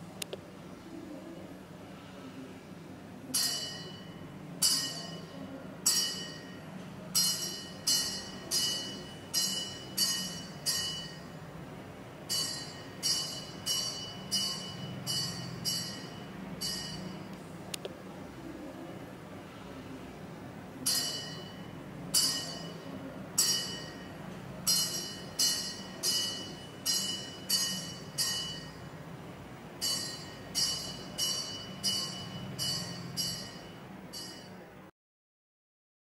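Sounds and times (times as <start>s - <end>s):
low steady hum: 0.0s - 34.9s
metallic bell-like strikes: 3.4s - 11.4s, 12.3s - 17.3s, 20.9s - 28.9s, 29.8s - 34.6s.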